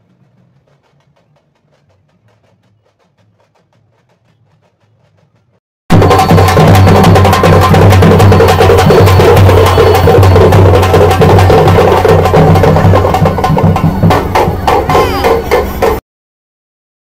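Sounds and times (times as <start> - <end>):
frame drums beating fast rhythm: 0.0 - 16.0.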